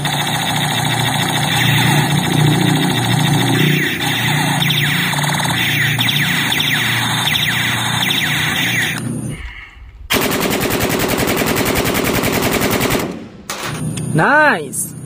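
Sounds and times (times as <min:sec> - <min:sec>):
rifle automatic fire: 0:00.0 - 0:09.0, 0:10.1 - 0:14.0
toy gun electronic zaps: 0:00.0 - 0:09.0.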